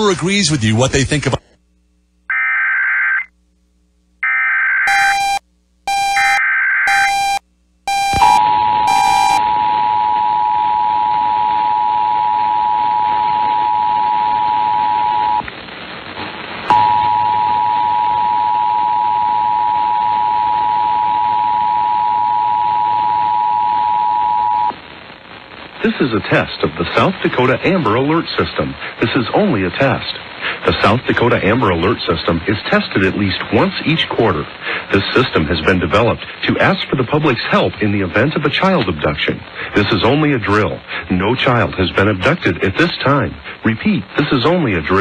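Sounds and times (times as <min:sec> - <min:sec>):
two-tone alert signal: 0:04.9 - 0:10.6.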